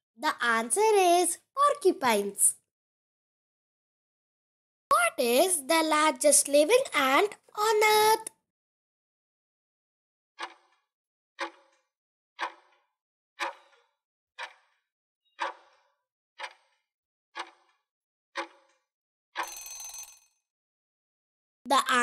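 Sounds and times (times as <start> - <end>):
clock ticking: 13.4 - 13.7
timer ringing: 19.4 - 20.3.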